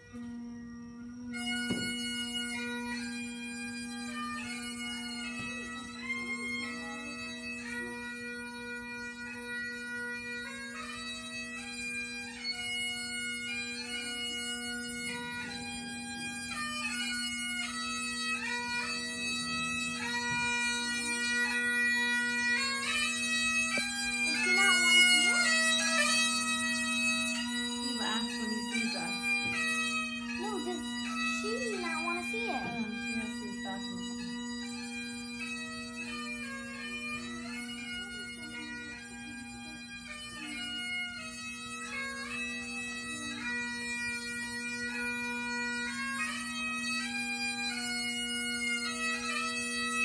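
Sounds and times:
bagpipes playing a tune: 0.0 - 50.0.

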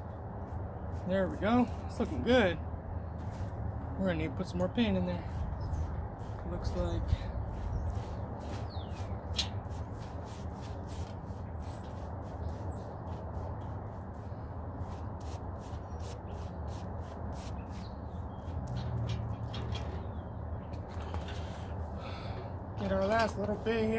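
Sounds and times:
steady low rumble: 0.0 - 23.9
foam brush strokes on wood: 5.3 - 17.9.

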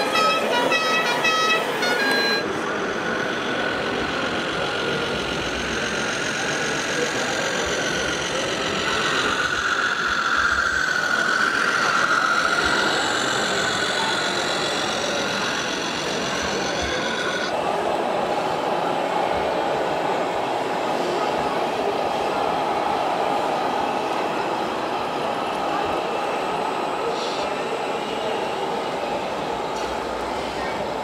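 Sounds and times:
wavering horn-like tone: 0.0 - 2.6
crowd din in indoor hall: 0.0 - 31.0
model truck engine noise: 0.0 - 31.0.

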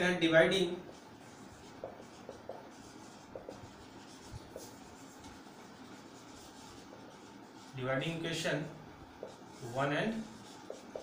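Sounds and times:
marker scratching on whiteboard: 0.0 - 11.0.

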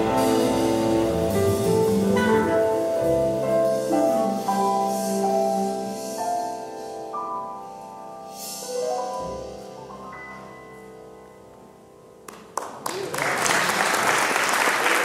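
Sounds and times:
jazz ballad from quartet: 0.0 - 12.3
audience applause: 12.3 - 15.0.

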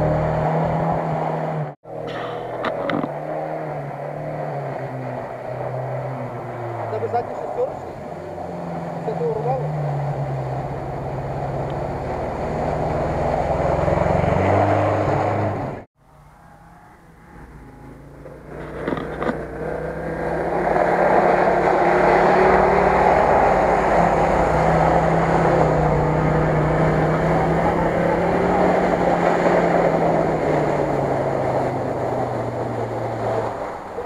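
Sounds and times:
suv engine running hard: 0.0 - 15.9, 17.0 - 34.0.

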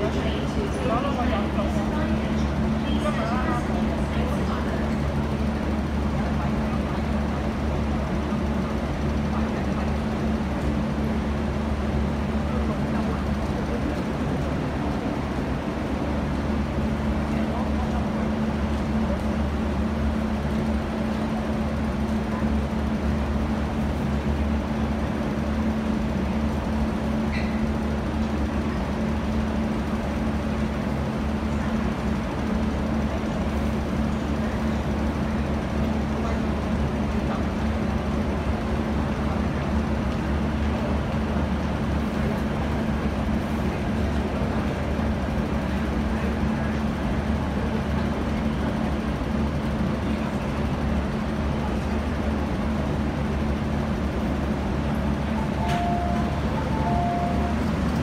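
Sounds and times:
train rumble with low hum: 0.0 - 58.0
two-tone beeping chime: 55.4 - 57.9.

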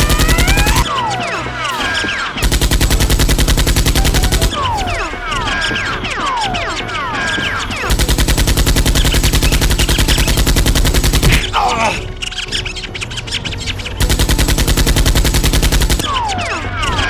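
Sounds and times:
machine-gun fire: 0.0 - 0.9, 2.0 - 5.8, 7.6 - 11.6, 14.0 - 17.0
rapid clicking: 0.0 - 17.0.

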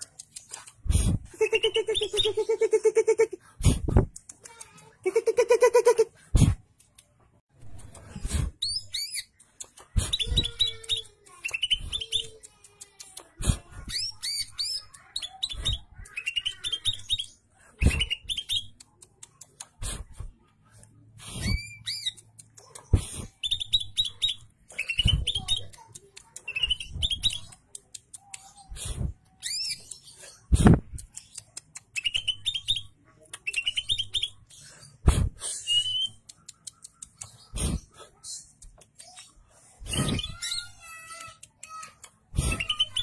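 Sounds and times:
bird clicking and chipping: 0.0 - 2.3, 7.8 - 20.2, 21.4 - 43.0
bird whistled song: 10.0 - 12.3, 13.9 - 18.8, 23.4 - 25.6, 26.5 - 27.5, 28.9 - 30.6, 32.0 - 34.7, 35.5 - 36.2, 39.2 - 40.8, 42.4 - 43.0.

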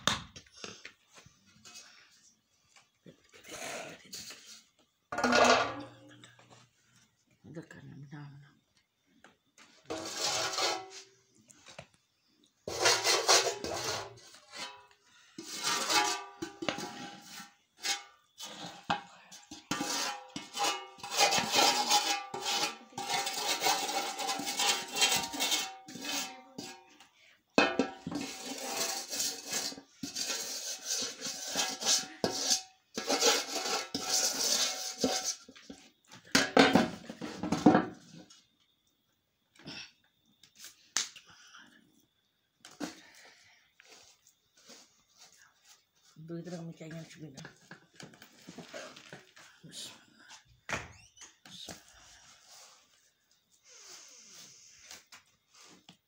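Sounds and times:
metal bowl clattering: 5.1 - 6.1, 12.7 - 26.9, 27.6 - 35.4
wooden spoon scraping steel bowl: 9.8 - 11.1, 12.7 - 27.0, 27.8 - 35.6.

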